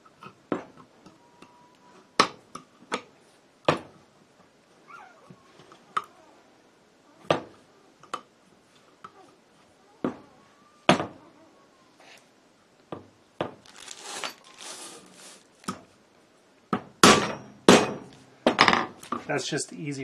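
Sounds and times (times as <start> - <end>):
rustling: 13.5 - 16.0.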